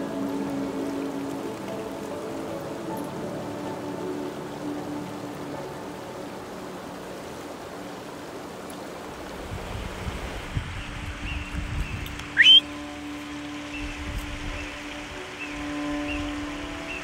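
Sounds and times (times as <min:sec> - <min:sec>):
stream rushing over rocks: 0:00.0 - 0:17.0
loud rising whistle: 0:12.3 - 0:12.9.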